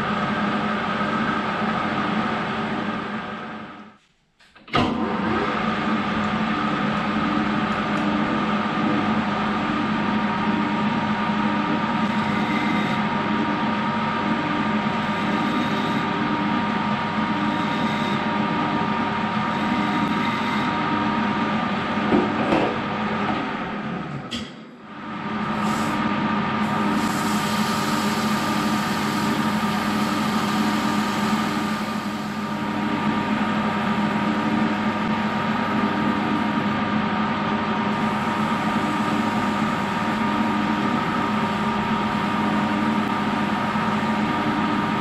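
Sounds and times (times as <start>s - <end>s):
motor whine: 11.8s - 13.1s, 14.8s - 21.1s
metal lathe humming: 26.6s - 36.7s.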